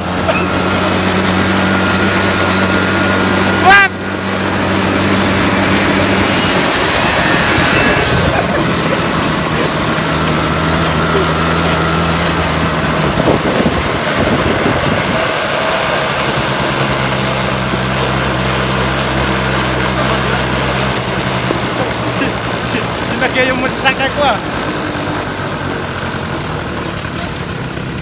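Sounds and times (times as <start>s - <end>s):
quad bike engine running: 0.0s - 28.0s
wind rushing over microphone: 12.9s - 15.6s.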